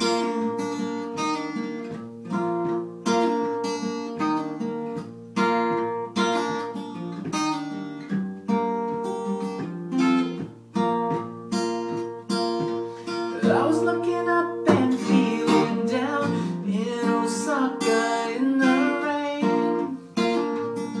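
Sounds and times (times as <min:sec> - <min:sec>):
acoustic guitar chords strummed: 0:00.0 - 0:21.0.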